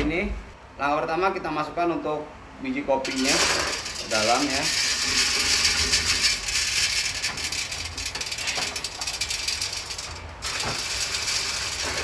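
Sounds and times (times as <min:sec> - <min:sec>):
coffee beans rattling on metal: 0:03.0 - 0:12.0.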